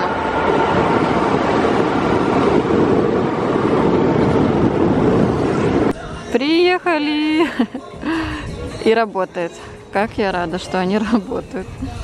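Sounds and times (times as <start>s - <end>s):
road noise on wet road: 0.0s - 6.0s.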